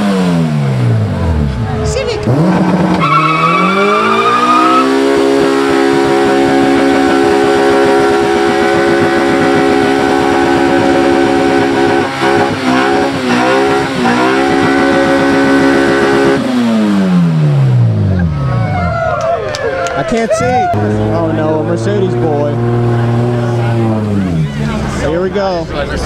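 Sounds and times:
car engine at high revs: 0.0s - 18.5s, 20.1s - 26.0s
tyre squeal: 2.7s - 5.0s.

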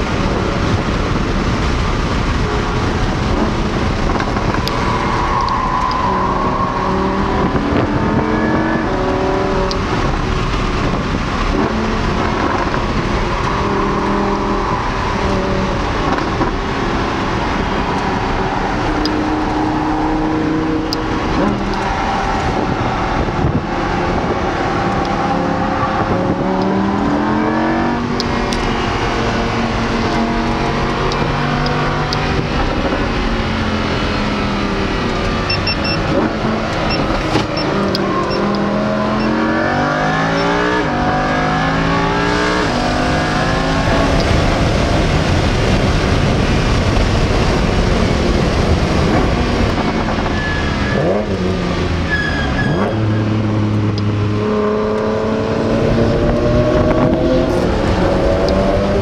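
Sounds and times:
car engine revving: 0.0s - 59.0s
road and wind noise: 0.0s - 59.0s
brakes squealing: 2.3s - 23.6s, 25.0s - 40.8s, 49.0s - 54.1s.

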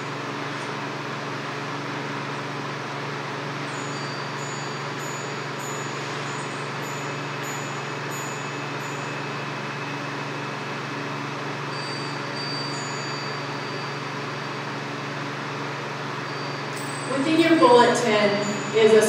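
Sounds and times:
faint high chimes: 3.7s - 9.8s, 11.6s - 14.7s, 16.2s - 19.0s.

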